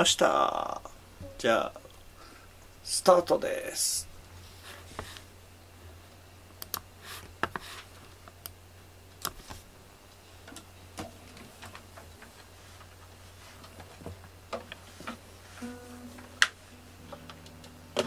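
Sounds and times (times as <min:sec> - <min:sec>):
low steady hum: 0:00.0 - 0:18.0
computer mouse clicking: 0:06.6 - 0:06.8.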